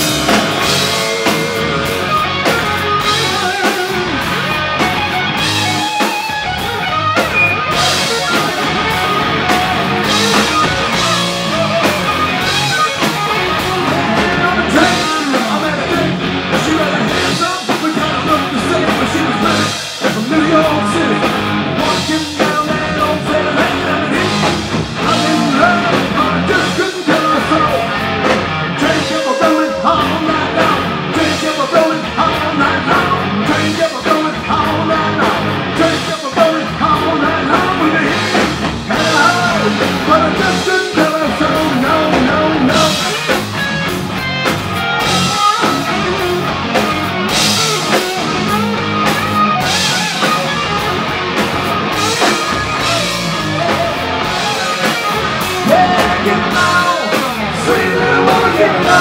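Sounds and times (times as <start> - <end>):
bass guitar: 0.0 - 59.0
drum kit: 0.0 - 59.0
electric guitars: 0.0 - 59.0
man singing: 13.7 - 43.4, 52.0 - 59.0.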